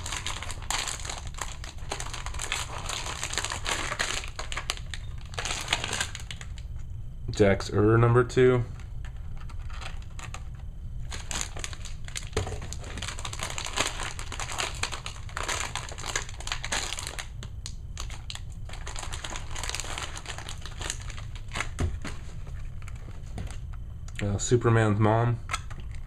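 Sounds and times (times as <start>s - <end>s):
plastic packaging crinkling: 0.0s - 6.8s, 9.0s - 23.8s.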